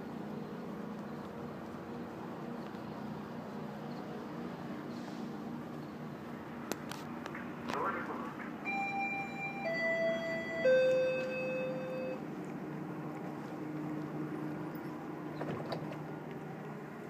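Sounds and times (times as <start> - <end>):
train hum: 0.0 - 17.0
descending three-tone door chime: 8.7 - 12.2.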